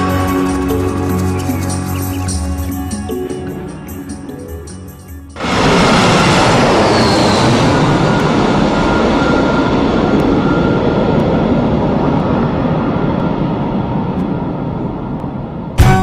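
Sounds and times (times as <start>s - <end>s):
falling high whine: 0.0s - 16.0s
jet engine roar: 5.3s - 15.9s.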